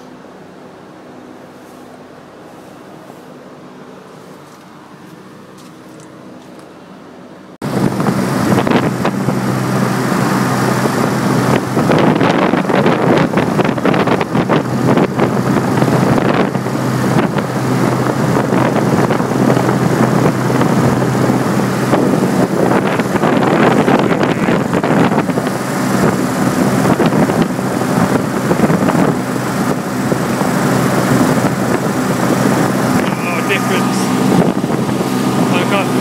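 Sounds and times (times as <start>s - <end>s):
heat pump fan humming: 0.0s - 36.0s
wind on microphone: 7.6s - 36.0s.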